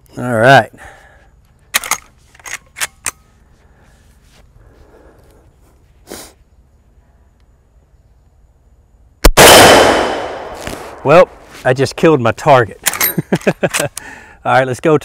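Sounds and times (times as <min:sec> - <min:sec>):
rifle lever metallic clicks: 0:01.7 - 0:03.2, 0:12.8 - 0:14.0.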